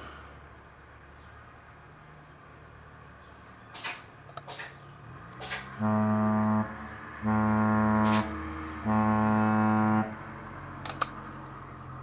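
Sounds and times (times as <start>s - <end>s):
ship horn blasts: 5.8s - 10.3s.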